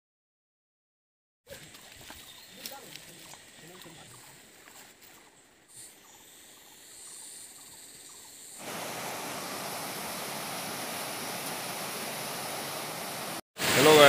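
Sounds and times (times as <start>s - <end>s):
fast-flowing river rushing: 8.6s - 14.0s.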